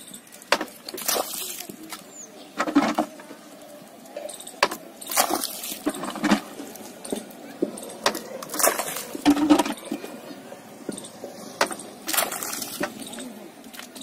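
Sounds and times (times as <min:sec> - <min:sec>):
wet clay slapping and splashing: 0:00.6 - 0:02.0, 0:05.0 - 0:06.9.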